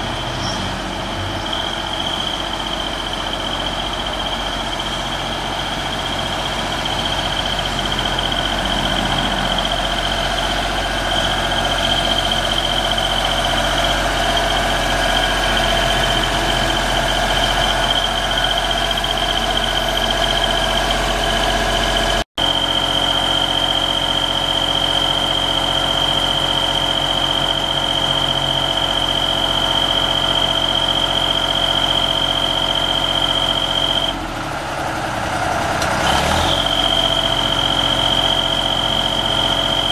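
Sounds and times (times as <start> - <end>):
high-pitched tone: 0.0 - 34.2
diesel engine running: 0.0 - 39.9.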